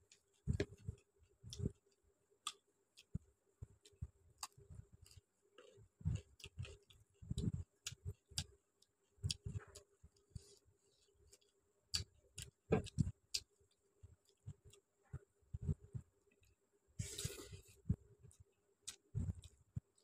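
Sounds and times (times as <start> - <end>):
chewing with wet mouth clicks: 3.8 - 10.6, 11.3 - 14.8, 18.3 - 20.0.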